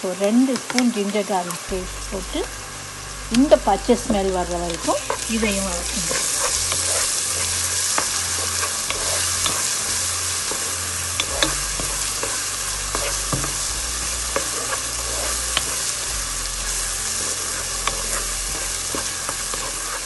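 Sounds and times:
onions sizzling in hot oil: 0.0s - 20.0s
wooden spatula tapping and scraping: 4.0s - 16.0s, 17.2s - 20.0s.

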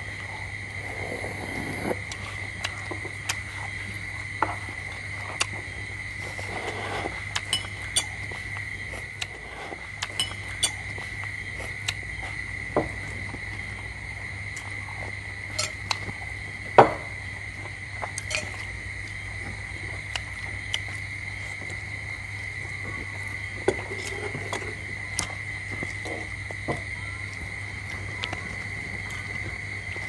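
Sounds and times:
spoons and bowls clinking: 7.4s - 8.4s, 10.0s - 10.9s, 15.5s - 16.0s, 18.2s - 18.7s.

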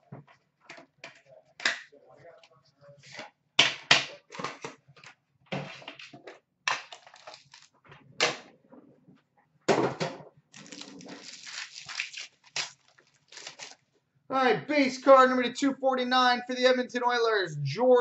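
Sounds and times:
card packaging crinkling: 6.8s - 7.7s, 10.6s - 13.8s
louder crackle: 10.6s - 13.8s.

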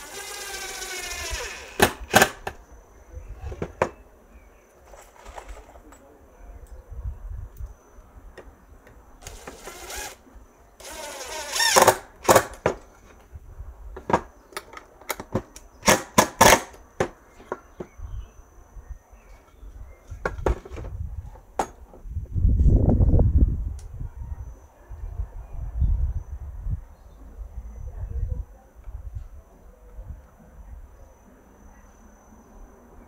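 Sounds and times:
cordless drill whirring: 0.0s - 2.2s, 9.2s - 10.2s, 10.8s - 12.0s.

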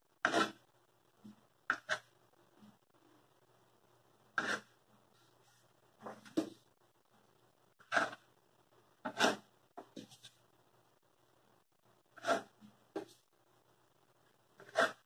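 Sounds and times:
paintbrush scraping on paper: 0.2s - 0.6s, 1.2s - 2.1s, 4.4s - 6.4s, 7.8s - 8.3s, 9.0s - 10.4s, 12.2s - 13.3s, 14.6s - 15.0s.

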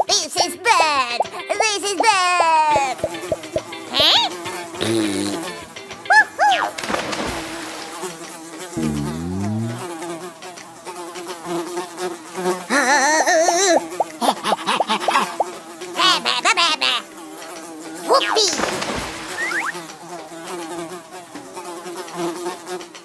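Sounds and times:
cartoon bees buzzing: 2.7s - 5.8s, 6.5s - 10.2s, 11.5s - 17.2s, 17.9s - 20.0s.

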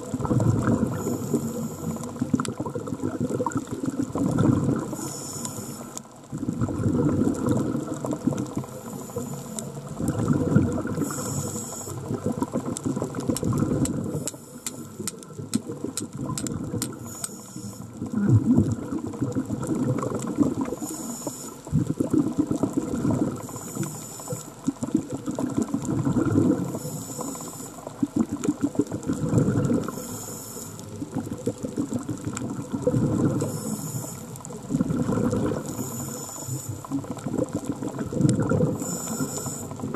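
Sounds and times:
bubbling on exhale: 0.0s - 39.9s
regulator hiss on inhale: 0.9s - 2.2s, 4.8s - 6.1s, 8.7s - 9.9s, 10.9s - 12.2s, 14.1s - 15.2s, 16.8s - 18.0s, 20.7s - 21.7s, 23.4s - 24.6s, 26.6s - 28.0s, 29.8s - 30.9s, 33.3s - 34.6s, 35.5s - 37.0s, 38.7s - 39.9s
sharp clicks: 13.3s - 17.6s.

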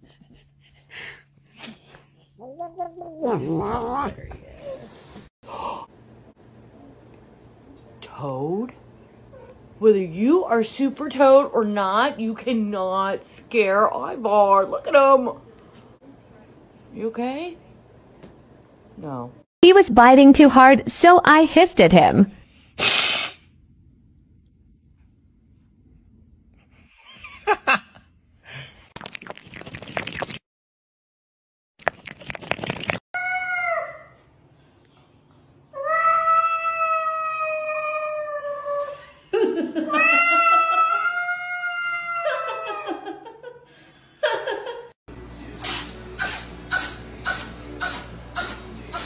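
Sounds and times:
cat yowling: 2.6s - 4.8s.

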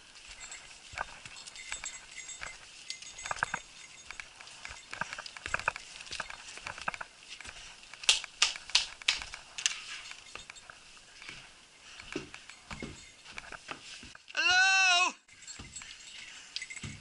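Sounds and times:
footsteps on rock: 0.0s - 9.6s
footsteps on porch floor: 0.0s - 14.5s, 15.2s - 17.0s.

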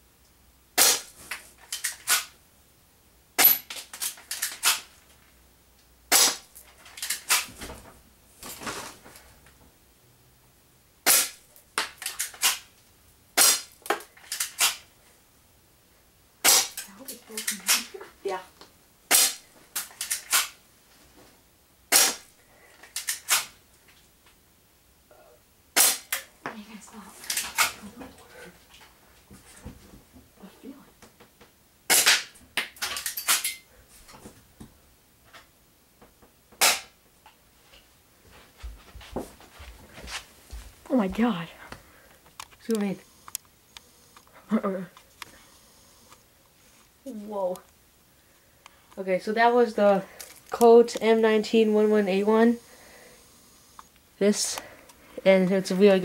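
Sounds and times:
airsoft gun shot crack: 6.1s - 6.4s, 13.4s - 13.7s, 16.4s - 16.8s, 19.1s - 19.4s, 21.9s - 22.2s, 25.8s - 26.2s, 36.6s - 36.9s.

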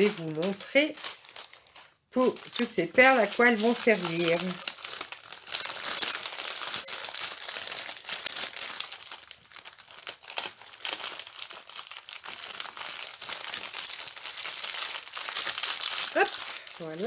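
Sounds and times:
packaging crinkling and rustling: 0.0s - 17.0s.

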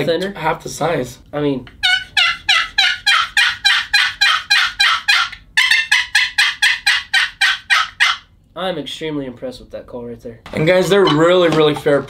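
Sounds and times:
turkey box call hen yelps: 1.8s - 8.3s.

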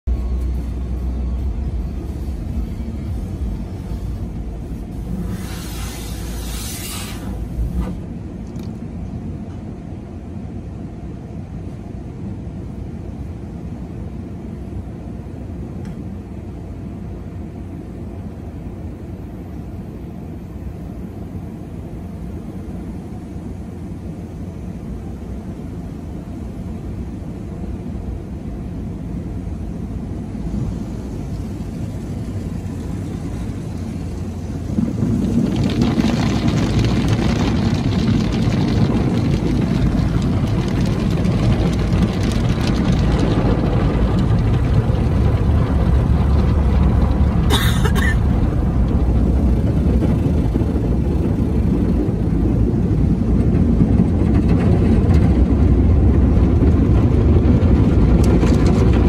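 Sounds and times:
car wash machinery rumble: 0.0s - 59.0s
water washing over windshield: 1.8s - 8.8s, 30.3s - 59.0s.

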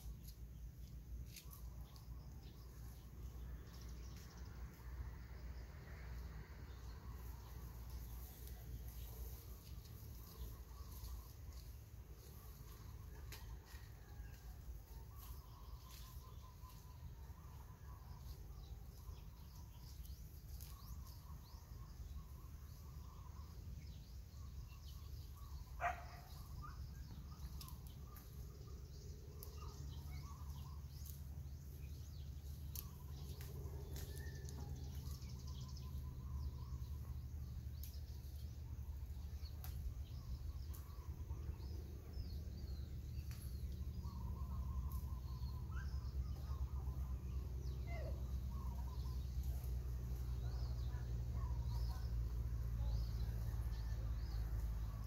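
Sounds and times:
low outdoor rumble: 0.0s - 55.0s
faint bird chirps: 39.2s - 55.0s.

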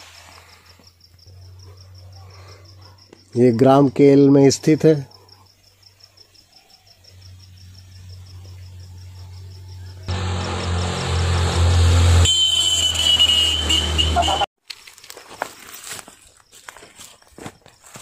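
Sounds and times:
crickets chirping: 0.0s - 10.1s, 15.2s - 18.0s
motorcycle engine: 9.1s - 14.5s.

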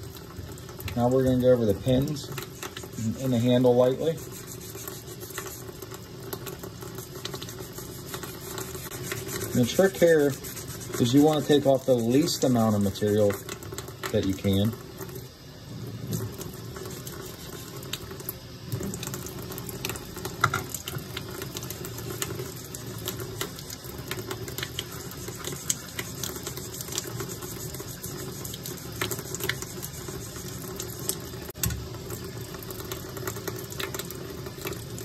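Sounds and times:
wet sandpaper scratching: 2.5s - 5.8s, 7.0s - 13.5s, 25.1s - 30.7s.

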